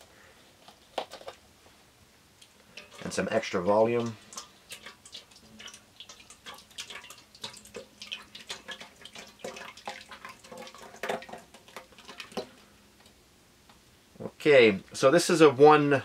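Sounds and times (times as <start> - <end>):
liquid glugging and splashing into bowl: 2.7 - 12.7.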